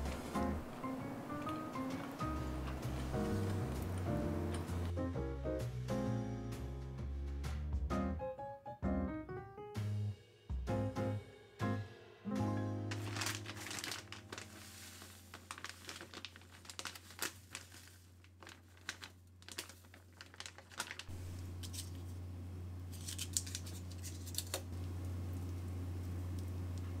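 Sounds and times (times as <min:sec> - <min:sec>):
plastic packaging crinkling: 0:12.9 - 0:22.2, 0:22.8 - 0:24.8.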